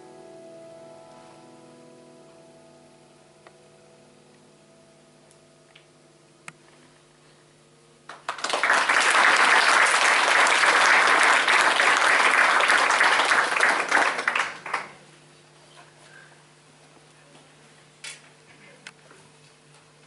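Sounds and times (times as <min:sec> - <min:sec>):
audience applauding: 0:08.1 - 0:15.0.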